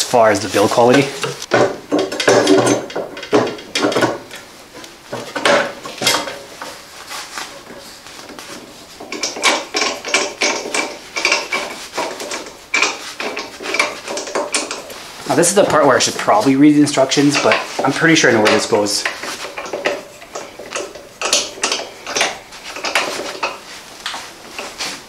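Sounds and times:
plastic and metal parts clattering: 0:00.6 - 0:04.5, 0:05.1 - 0:06.8, 0:07.4 - 0:25.0.

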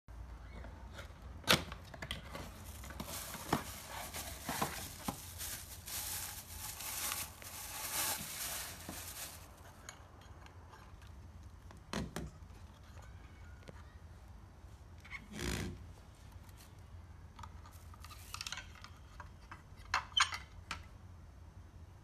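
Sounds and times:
plastic bag crinkling: 0:02.2 - 0:09.7.

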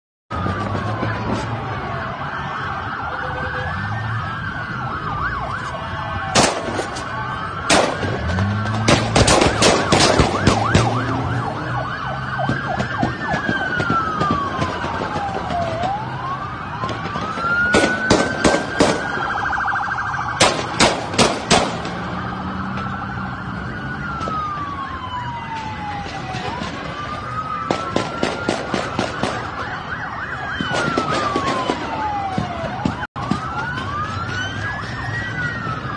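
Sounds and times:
police sirens wailing: 0:00.3 - 0:35.9
sharp bangs: 0:06.3 - 0:11.4, 0:16.8 - 0:19.3, 0:20.3 - 0:22.1.

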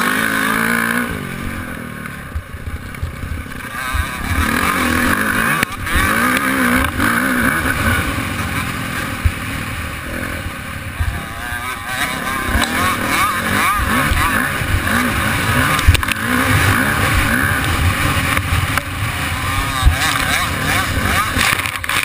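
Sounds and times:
dirt bike engine revving: 0:00.0 - 0:22.0
low thumps from bumps: 0:12.2 - 0:18.9.

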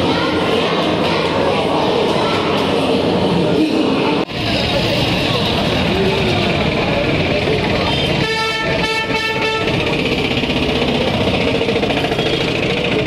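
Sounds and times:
street noise: 0:00.0 - 0:13.0
auto-rickshaw engine running: 0:04.3 - 0:13.0
vehicle horn blasts: 0:07.9 - 0:09.8.

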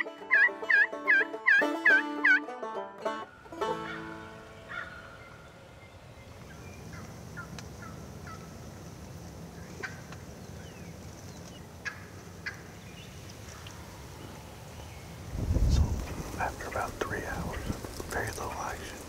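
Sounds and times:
turkey gobbling: 0:00.0 - 0:02.5, 0:03.6 - 0:05.3
low rumble: 0:15.3 - 0:18.4.

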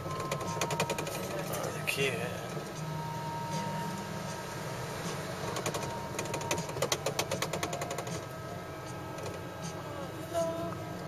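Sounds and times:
low electric hum: 0:00.0 - 0:11.0
rapid mechanical clicks: 0:00.1 - 0:01.5, 0:05.5 - 0:08.3.

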